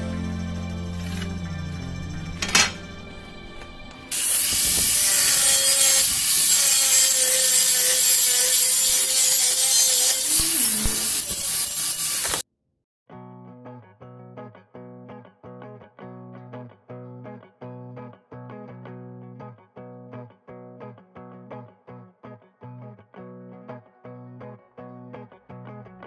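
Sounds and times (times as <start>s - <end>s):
angle grinder cutting tile: 0.9s - 1.6s, 3.7s - 12.4s.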